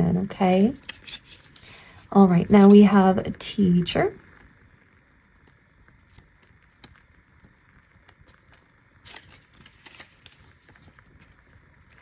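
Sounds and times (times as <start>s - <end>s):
paper rustling: 0.6s - 2.0s, 8.2s - 12.0s.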